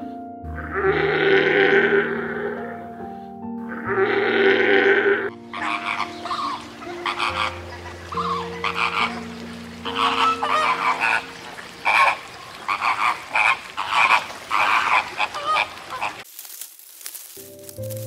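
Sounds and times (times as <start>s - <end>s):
flamingos calling: 3.7s - 16.3s.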